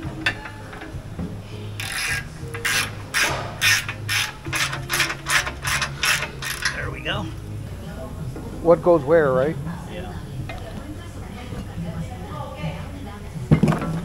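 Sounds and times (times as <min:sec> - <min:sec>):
ratchet wrench clicking: 0:00.2 - 0:01.0, 0:01.8 - 0:06.9.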